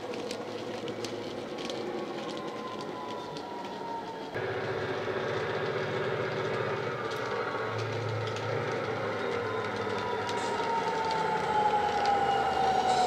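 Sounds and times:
diesel locomotive engine hum: 0:00.0 - 0:13.0
whine falling in pitch: 0:04.4 - 0:13.0.

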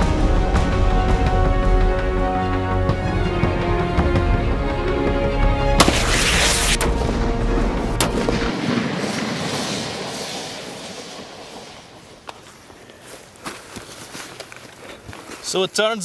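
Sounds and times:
loud rifle shot: 0:05.8 - 0:07.0
sharp cracks: 0:05.8 - 0:13.5.

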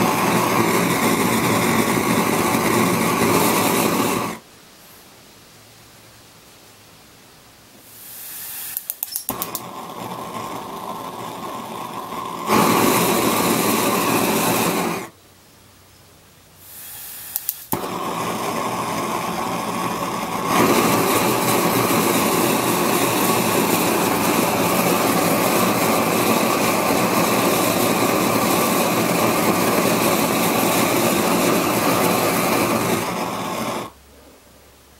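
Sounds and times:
burner flame roaring: 0:00.0 - 0:04.4, 0:08.0 - 0:15.1, 0:16.7 - 0:34.0
gas hissing: 0:00.0 - 0:04.4, 0:07.8 - 0:15.2, 0:16.6 - 0:34.0
spark igniter clicks: 0:08.2 - 0:15.1, 0:16.8 - 0:33.9.

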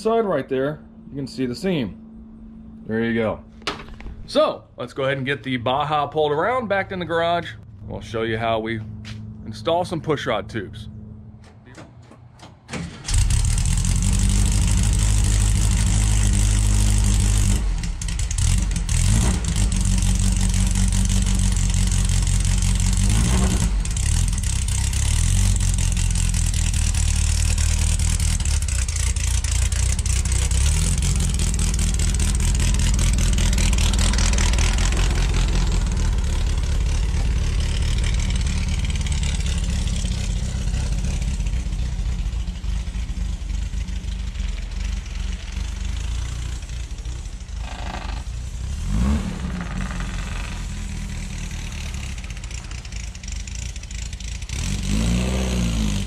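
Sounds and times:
car engine running: 0:05.7 - 0:56.0.

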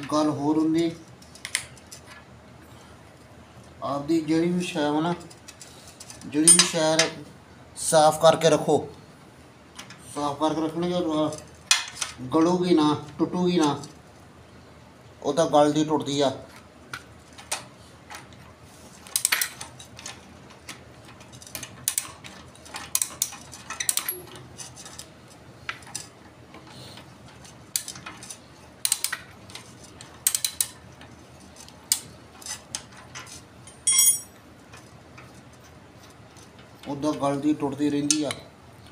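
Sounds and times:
metallic clink: 0:33.7 - 0:34.4.

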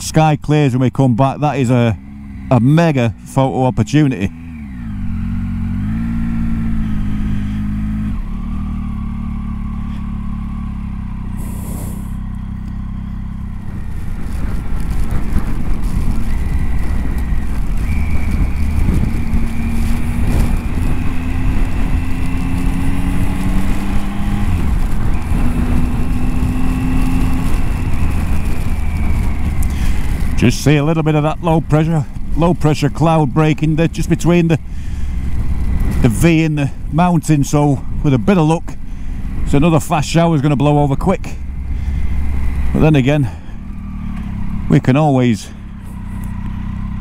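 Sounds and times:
motorcycle engine accelerating: 0:00.0 - 0:47.0
wind rush on microphone: 0:13.4 - 0:33.0.

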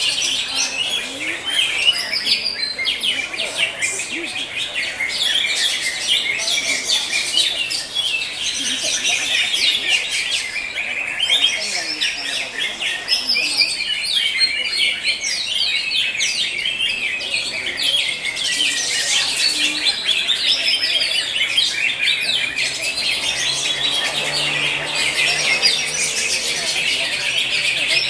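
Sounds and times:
bird chirping and trilling: 0:00.0 - 0:28.0.

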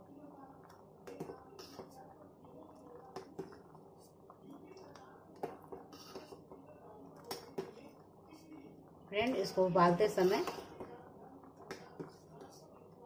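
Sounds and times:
boiling water bubbling: 0:00.0 - 0:13.0.

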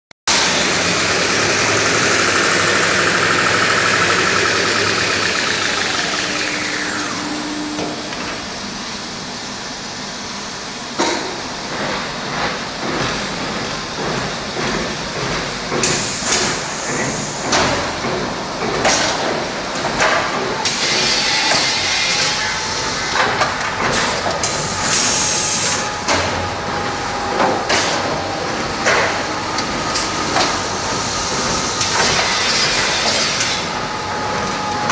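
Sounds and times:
high whine gliding down: 0:00.3 - 0:09.3
machine whirring and hissing: 0:00.3 - 0:34.9.

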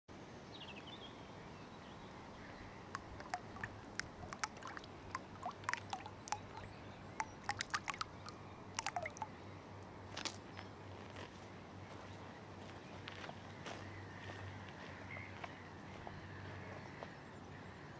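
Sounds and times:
baits plopping into water: 0:02.8 - 0:09.5.

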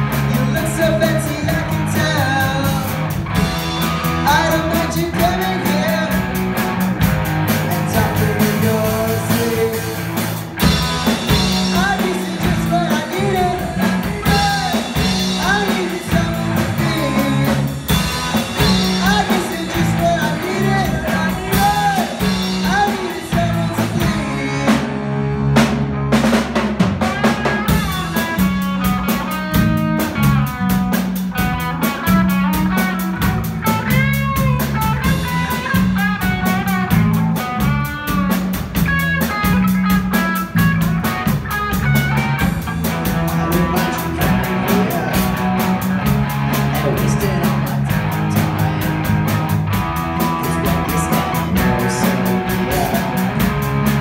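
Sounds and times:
drum kit: 0:00.0 - 0:54.0
electric bass: 0:00.0 - 0:54.0
electric guitar: 0:00.0 - 0:54.0.

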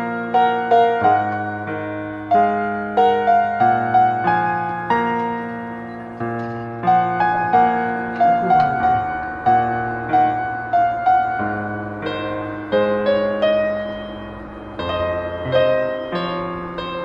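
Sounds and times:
gentle piano melody: 0:00.0 - 0:17.0
held low bass notes: 0:07.6 - 0:11.0.

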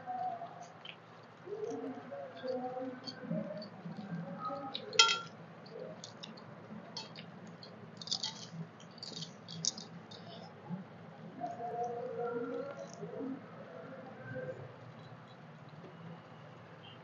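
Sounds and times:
fingers mixing rice on plates: 0:00.6 - 0:10.5
sharp metallic clink: 0:05.0 - 0:05.3
chewing and mouth sounds: 0:05.8 - 0:10.5.

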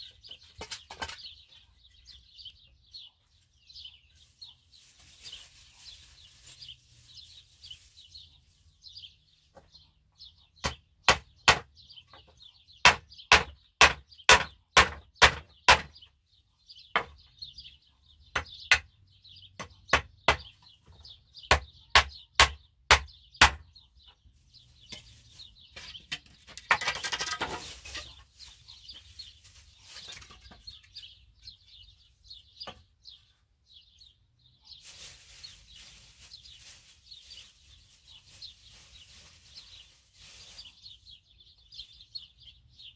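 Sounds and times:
small birds chirping: 0:00.0 - 0:42.9
hammer striking wooden boards: 0:10.6 - 0:11.8, 0:12.8 - 0:16.0, 0:19.6 - 0:20.6, 0:21.5 - 0:23.6.

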